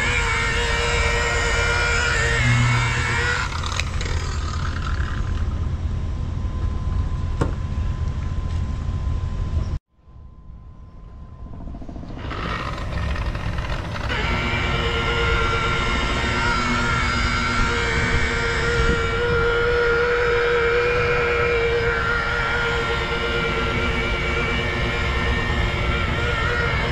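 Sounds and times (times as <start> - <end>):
polisher motor whine: 0.0 - 5.6, 12.1 - 26.9.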